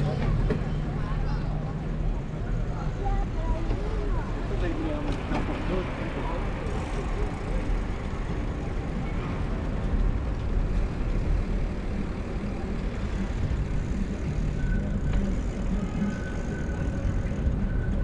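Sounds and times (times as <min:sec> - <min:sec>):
bicycle road rumble: 0:00.0 - 0:18.0.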